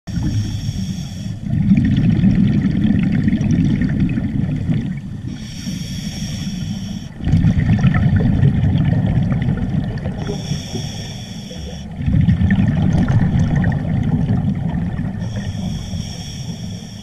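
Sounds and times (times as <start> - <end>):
hissing regulator inhale: 0.1 - 1.5, 5.3 - 7.2, 10.2 - 12.0, 15.2 - 17.0
exhaled bubbles underwater: 0.1 - 17.0.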